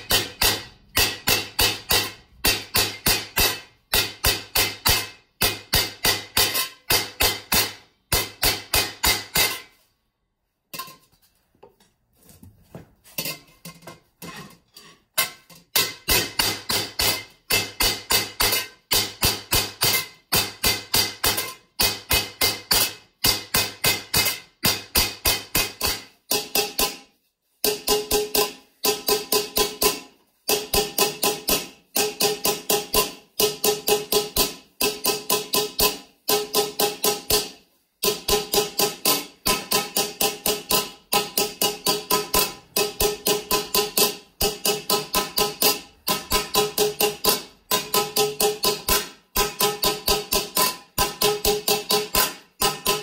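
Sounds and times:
hammer ringing on copper: 0.0 - 9.7, 15.2 - 27.0, 27.7 - 53.0.

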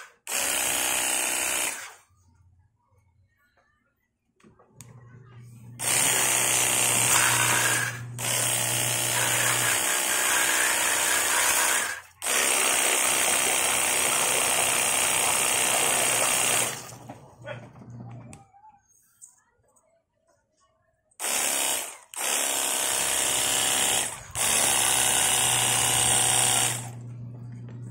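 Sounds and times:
pressure washer pump whirring: 0.0 - 2.0, 5.8 - 17.2, 21.2 - 27.7.

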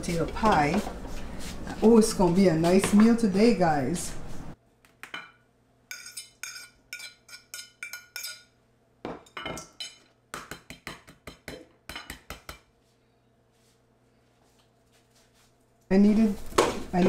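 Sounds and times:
fork clinking on a plate: 5.9 - 8.5.

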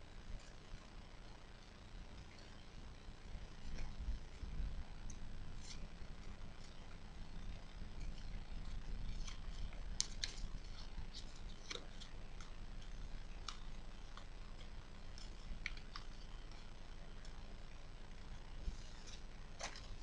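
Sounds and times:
steady low hum: 0.0 - 20.0
paper crinkling: 3.5 - 7.0, 8.0 - 17.5, 18.6 - 20.0.

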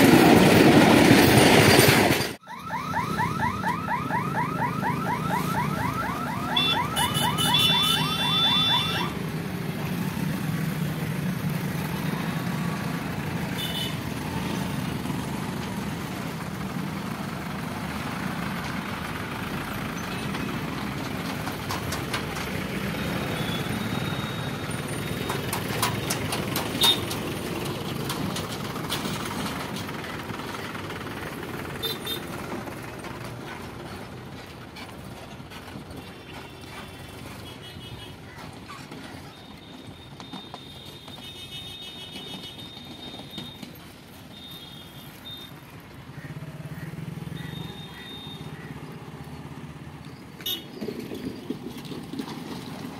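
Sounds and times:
vehicle engines rumbling: 0.0 - 52.9
warbling warning siren: 2.4 - 9.2.

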